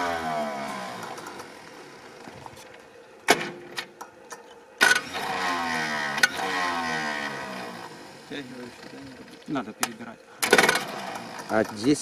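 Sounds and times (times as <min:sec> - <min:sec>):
falling pitched mechanical sound: 0:00.0 - 0:02.5, 0:04.8 - 0:12.0
sharp metallic clanks: 0:09.5 - 0:12.0
small mechanical ticks: 0:10.9 - 0:12.0.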